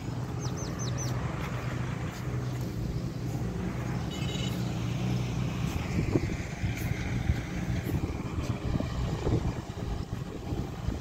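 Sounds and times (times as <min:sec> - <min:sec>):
bird chirping: 0:00.2 - 0:01.7
wind buffeting microphone: 0:05.2 - 0:11.0.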